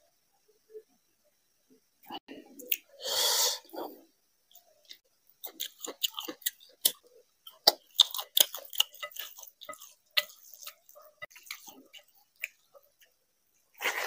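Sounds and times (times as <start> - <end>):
person chewing food: 4.5 - 13.2.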